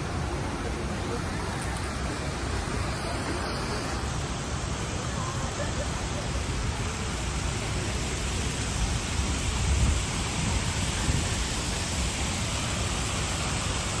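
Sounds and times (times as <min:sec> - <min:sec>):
wind buffeting microphone: 0:09.2 - 0:11.9.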